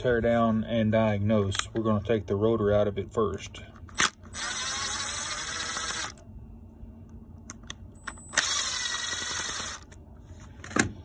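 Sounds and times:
electric screwdriver running: 0:04.0 - 0:06.2, 0:08.3 - 0:09.9.

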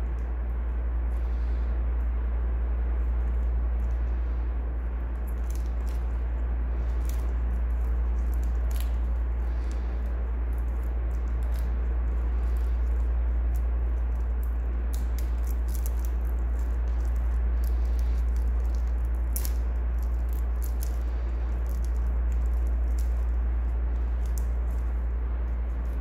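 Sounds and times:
low hum: 0:00.0 - 0:26.0
plastic film crinkling: 0:03.0 - 0:26.0.

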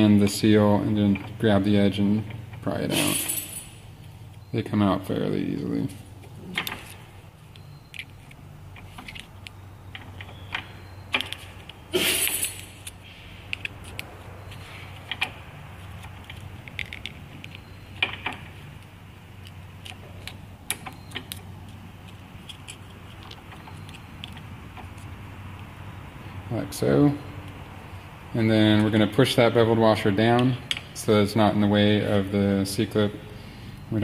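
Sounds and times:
low steady hum: 0:00.0 - 0:34.0
metal pick clicking and scraping: 0:06.5 - 0:14.1, 0:14.9 - 0:25.7.

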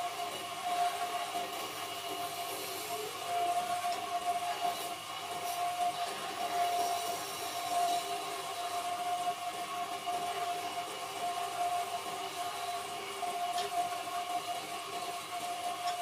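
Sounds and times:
wood lathe whining: 0:00.0 - 0:16.0
chisel cutting wood hiss: 0:06.4 - 0:08.8.

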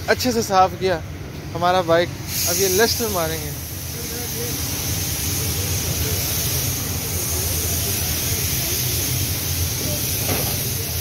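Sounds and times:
constant hiss: 0:00.0 - 0:11.0
faint voices: 0:03.7 - 0:11.0.

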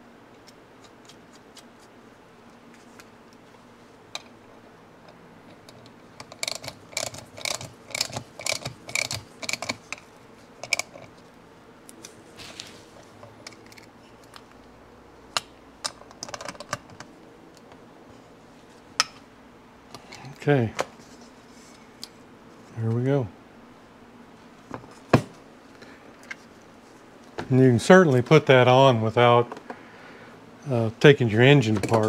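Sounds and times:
socket ratchet clicking: 0:06.2 - 0:10.0.

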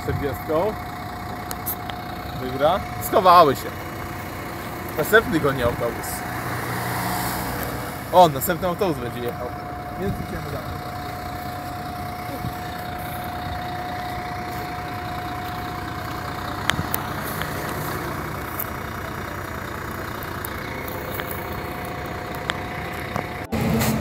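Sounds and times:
bus engine idling: 0:00.0 - 0:24.0
high whine: 0:07.4 - 0:24.0.

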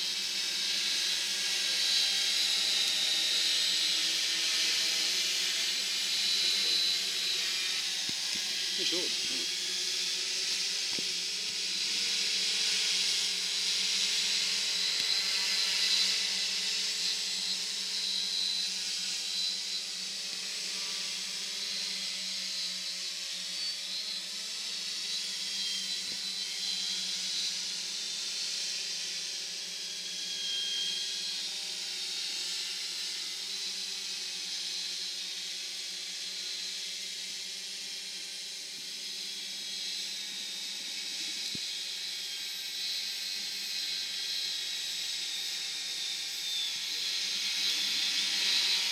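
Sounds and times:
drone propellers whirring: 0:00.0 - 0:48.9.

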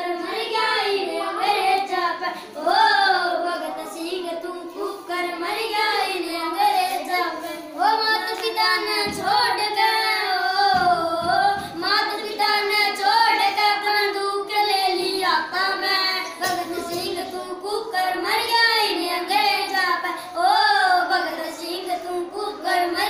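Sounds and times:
boy singing unaccompanied: 0:00.0 - 0:23.0.

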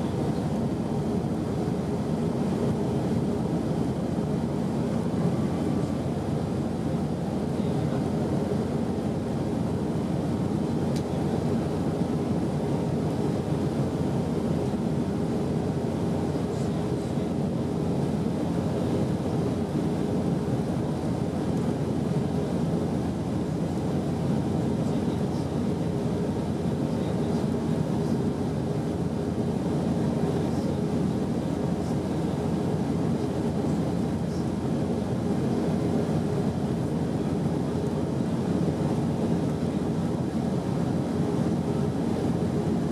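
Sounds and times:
jet engine cabin rumble: 0:00.0 - 0:42.9.

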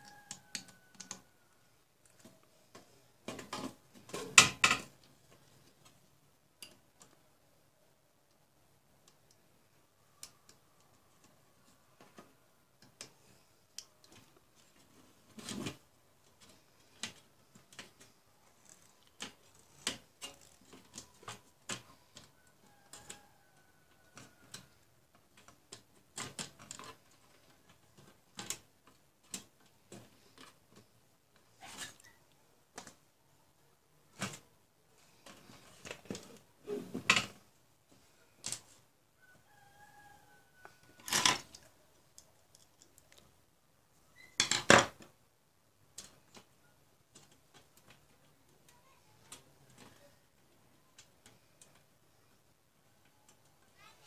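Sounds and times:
clicks and knocks of handling metal: 0:12.0 - 0:23.2, 0:24.0 - 0:32.0, 0:41.0 - 0:43.1.

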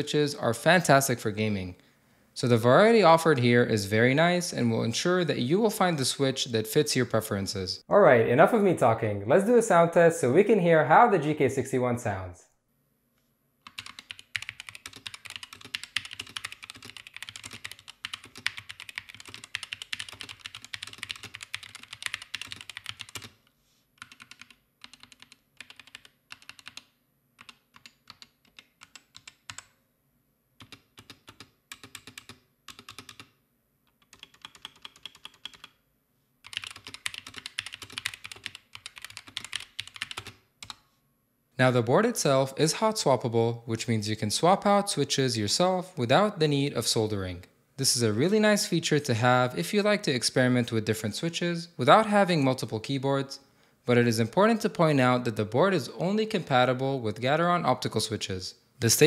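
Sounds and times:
keyboard typing clatter: 0:13.7 - 0:23.4, 0:24.0 - 0:29.7, 0:30.6 - 0:33.3, 0:33.9 - 0:35.8, 0:36.4 - 0:40.8.

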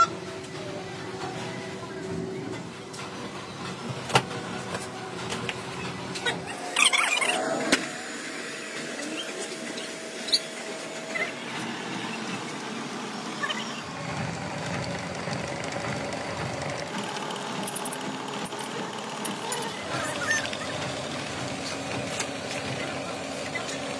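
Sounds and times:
workshop machinery hum: 0:00.0 - 0:23.9.

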